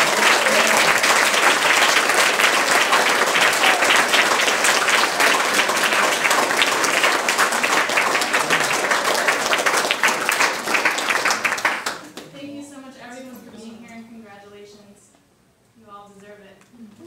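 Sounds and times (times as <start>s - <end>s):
crowd applauding: 0.0s - 12.2s.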